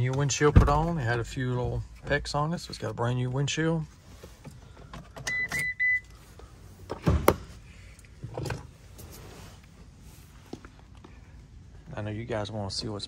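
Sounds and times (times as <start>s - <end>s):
dashboard warning chime beeps: 5.2s - 6.2s.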